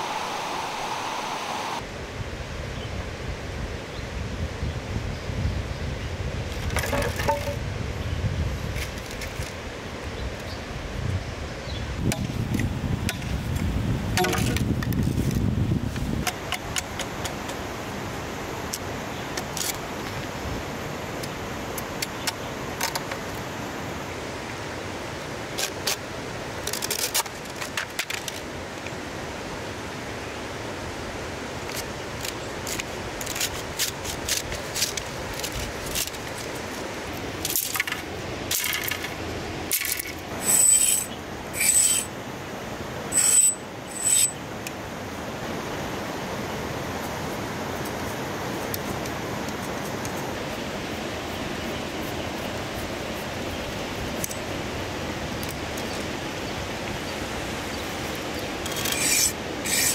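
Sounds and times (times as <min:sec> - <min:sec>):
river rapids rushing: 0:00.0 - 0:02.0, 0:28.4 - 0:59.9
blade scraping bamboo: 0:37.5 - 0:42.2, 0:43.1 - 0:44.4, 0:58.6 - 0:59.9.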